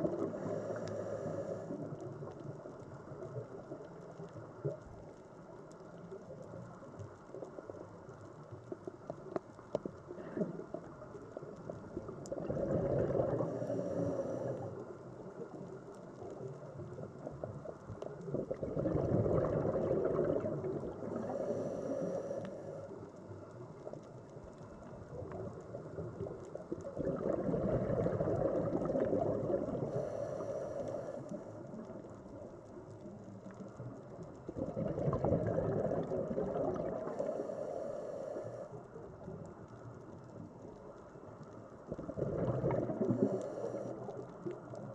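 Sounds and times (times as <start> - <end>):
regulator bubbles gurgling: 0.0 - 4.9, 10.2 - 23.8, 24.6 - 37.9, 41.8 - 44.9
faint regulator hiss: 0.0 - 18.4, 19.8 - 27.0, 27.8 - 34.6, 35.9 - 44.9.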